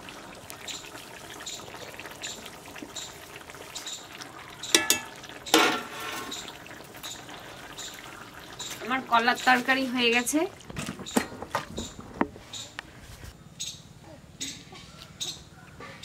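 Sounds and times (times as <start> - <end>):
curry bubbling: 0.0 - 12.4.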